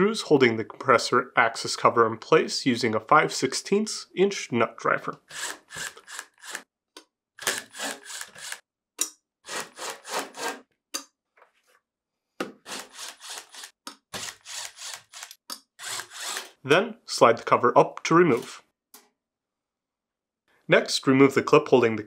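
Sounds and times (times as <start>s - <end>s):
nut driver scraping screws: 5.3s - 6.6s, 7.4s - 8.6s, 12.6s - 16.6s.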